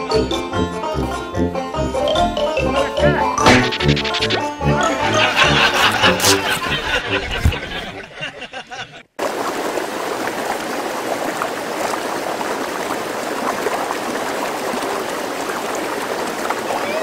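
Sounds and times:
background music: 0.0s - 8.3s
flowing water rushing: 9.2s - 17.0s.

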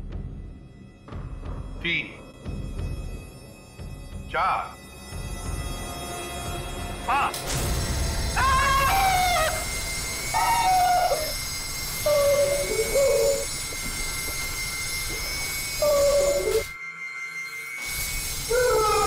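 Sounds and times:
steady high whine: 5.0s - 19.0s
harsh squawking cries: 8.3s - 16.8s, 18.4s - 19.0s.

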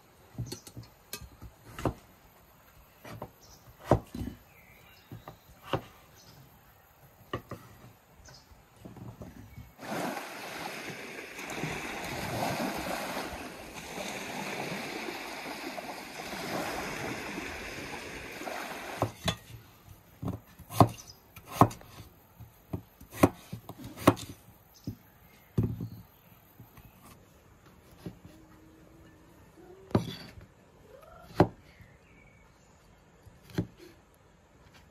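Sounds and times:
knife chopping on wooden board: 3.0s - 4.3s, 20.6s - 22.0s, 22.7s - 24.3s
waves washing onto shore: 9.8s - 19.2s.

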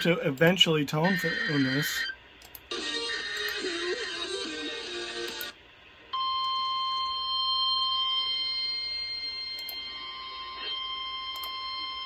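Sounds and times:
steady alarm tone: 0.9s - 2.2s, 6.2s - 12.0s.

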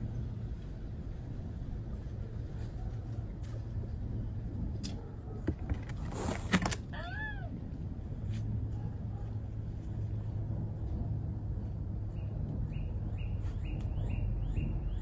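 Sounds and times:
steady low rumble: 0.0s - 5.5s, 6.8s - 15.0s
rustling noise: 5.5s - 6.9s.

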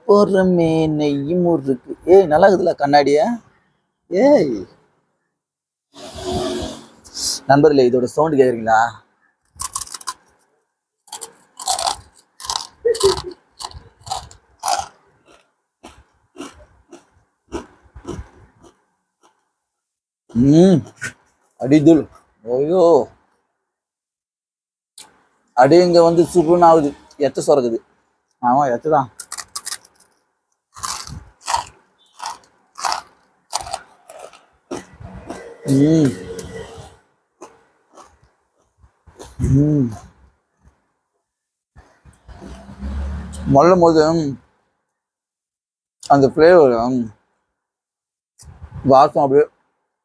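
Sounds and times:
crisp snack crunching: 9.5s - 10.3s, 11.1s - 19.4s, 29.2s - 35.4s, 37.4s - 39.4s.

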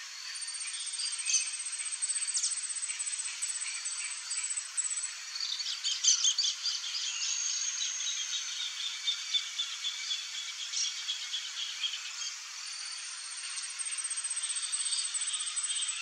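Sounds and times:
pulsing insect trill: 11.4s - 16.0s.

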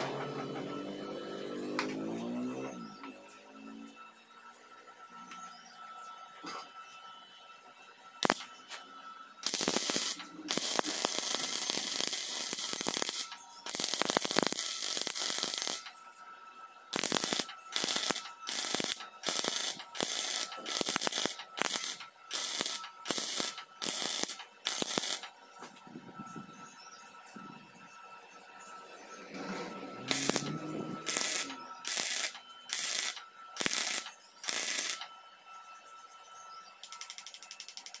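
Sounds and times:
welding arc crackling: 8.2s - 8.5s, 9.4s - 15.9s, 16.9s - 25.3s, 30.0s - 35.1s.

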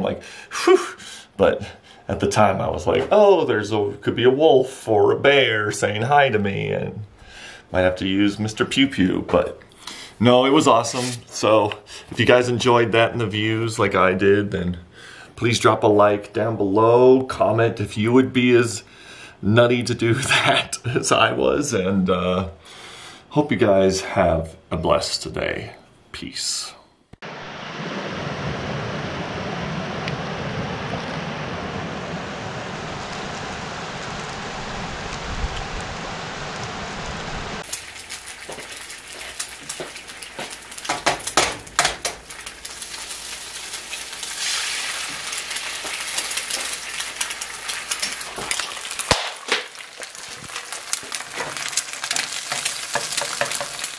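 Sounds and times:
eggs sizzling in a pan: 32.0s - 53.9s.

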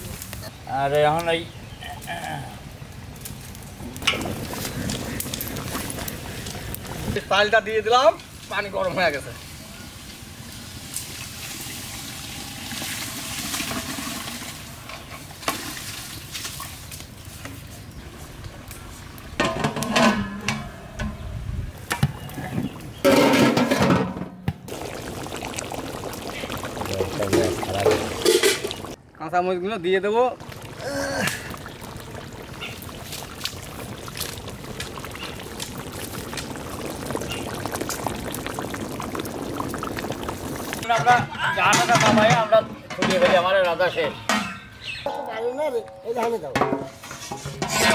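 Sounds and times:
curry bubbling in a wok: 2.9s - 7.6s, 24.7s - 42.1s
rice pouring into water: 24.7s - 29.0s, 30.4s - 40.8s.

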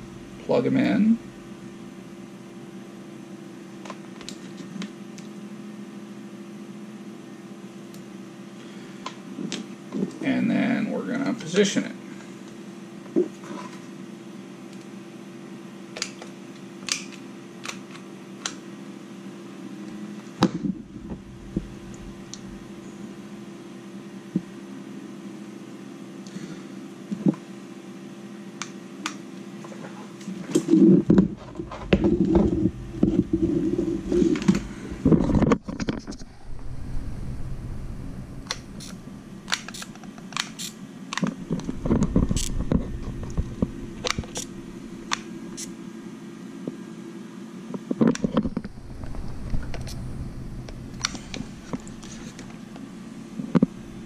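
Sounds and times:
steady hum: 0.0s - 15.9s, 16.9s - 54.0s
rubbing and knocking: 30.6s - 36.4s.

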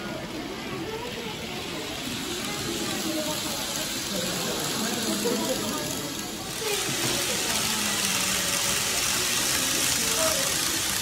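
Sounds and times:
model train rolling hiss: 0.0s - 11.0s.

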